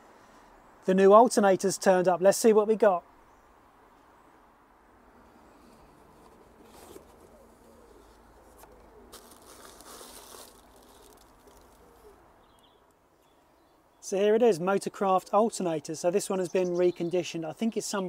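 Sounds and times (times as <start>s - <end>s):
faint birds calling: 5.2s - 14.2s
packaging rustling and tearing: 8.5s - 12.2s.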